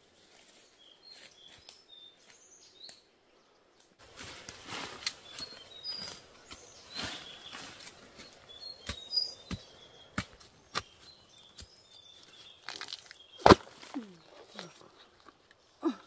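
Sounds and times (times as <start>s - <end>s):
bamboo cracking: 3.8s - 5.6s, 10.1s - 16.0s
bamboo creaking as it falls: 12.6s - 15.5s
blade chopping bamboo: 12.7s - 14.1s.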